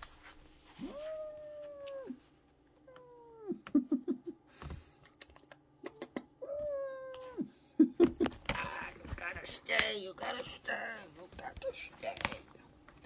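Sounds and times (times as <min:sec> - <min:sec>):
kittens meowing: 0:06.4 - 0:07.5.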